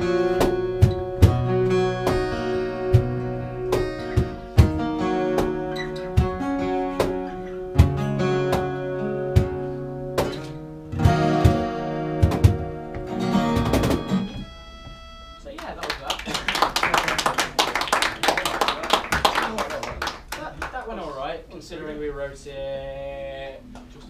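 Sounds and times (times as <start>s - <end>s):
acoustic guitars strumming: 0.0s - 15.8s.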